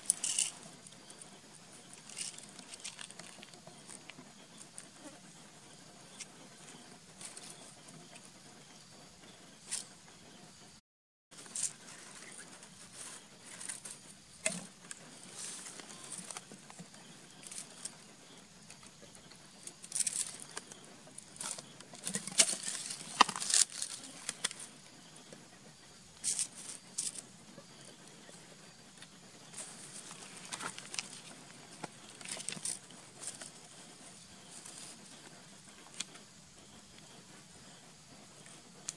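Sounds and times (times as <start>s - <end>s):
pebbles clicking: 0.0s - 0.6s, 2.0s - 3.6s.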